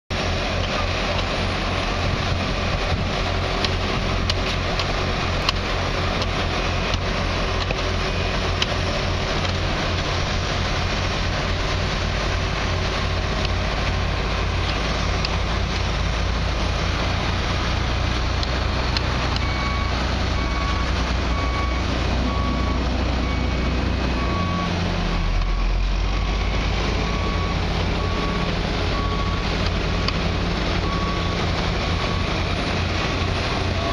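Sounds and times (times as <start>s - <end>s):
heavy diesel truck engines: 0.1s - 33.9s.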